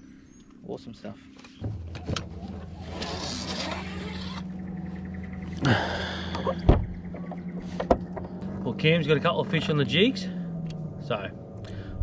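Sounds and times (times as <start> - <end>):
boat motor humming: 1.5 - 12.0
dull thump: 6.6 - 7.0.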